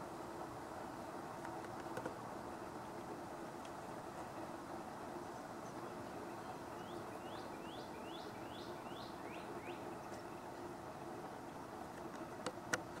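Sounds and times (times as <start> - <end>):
songbird whistling: 6.8 - 9.8.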